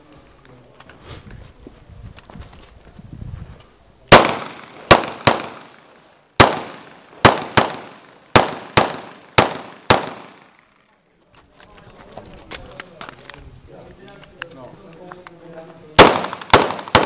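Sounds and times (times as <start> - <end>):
pistol shots with echo: 4.1 - 10.6, 16.0 - 17.0.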